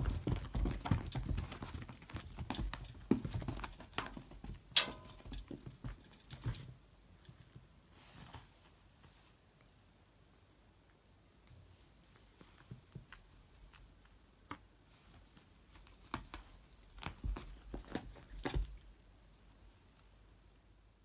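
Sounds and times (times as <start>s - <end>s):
cat toy jingling: 0.1s - 6.8s, 15.1s - 20.2s.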